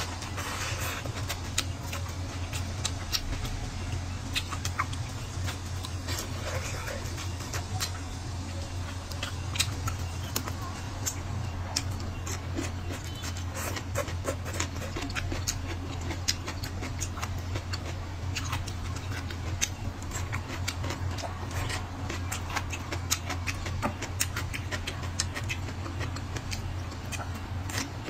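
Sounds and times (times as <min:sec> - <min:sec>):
slurping: 0:00.0 - 0:01.7
steady low hum: 0:00.0 - 0:28.0
wet chewing: 0:00.0 - 0:28.0.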